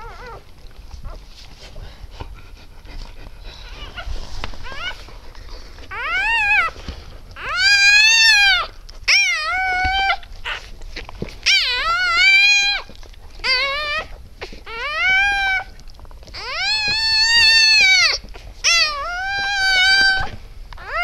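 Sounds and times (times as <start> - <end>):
puppy crying: 0.0 - 0.4, 3.7 - 5.1, 5.8 - 6.8, 7.4 - 10.7, 11.4 - 21.0
soft rustling: 0.0 - 21.0.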